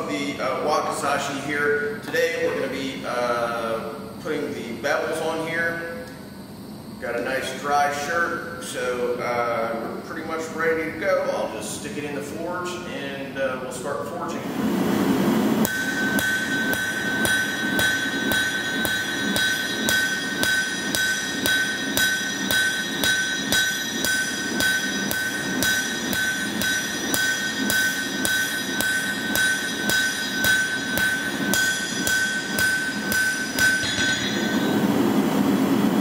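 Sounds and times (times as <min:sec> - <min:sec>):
anvil ringing: 0:15.6 - 0:35.6
hammer striking hot steel: 0:15.6 - 0:35.6.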